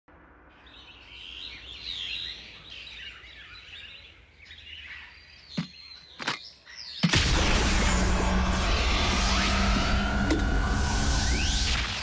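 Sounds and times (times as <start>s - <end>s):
birds chirping: 0.4s - 7.2s
low forest rumble: 7.2s - 12.0s.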